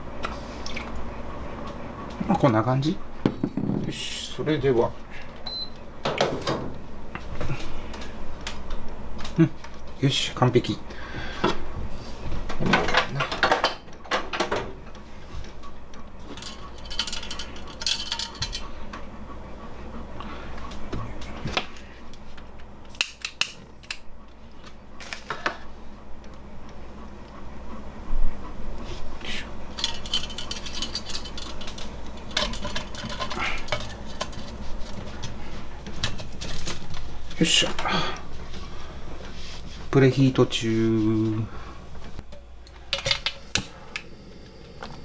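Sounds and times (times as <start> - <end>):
steady low hum: 0.0 - 45.0
metal parts clinking: 16.4 - 18.6, 29.8 - 34.5
thin brass rattling: 16.4 - 18.7, 29.8 - 34.7.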